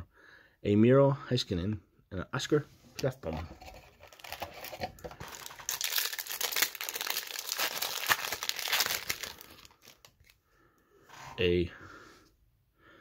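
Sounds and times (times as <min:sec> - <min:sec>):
card pack wrapper tearing: 0:04.0 - 0:10.4.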